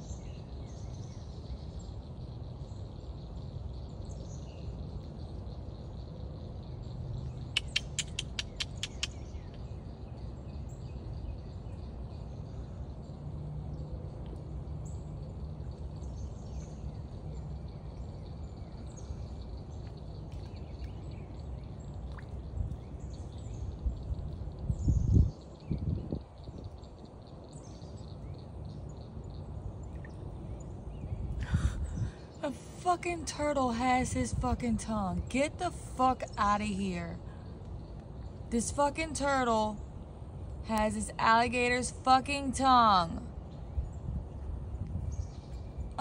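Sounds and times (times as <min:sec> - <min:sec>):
faint bird chirps: 0:00.0 - 0:13.1
sharp clicks: 0:07.6 - 0:09.2.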